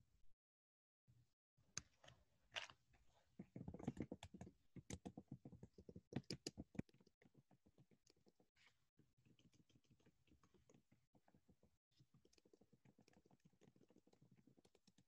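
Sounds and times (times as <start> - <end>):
faint rapid clicking: 3.5 - 8.6, 9.2 - 15.0.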